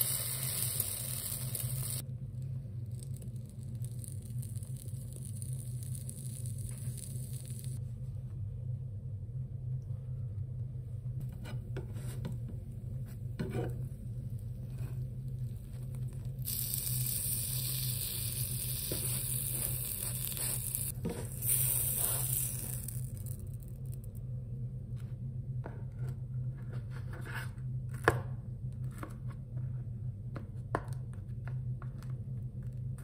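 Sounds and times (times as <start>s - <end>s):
food sizzling in frying pan: 0.0s - 2.0s, 5.3s - 7.8s, 16.4s - 23.4s
low steady hum: 0.0s - 33.0s.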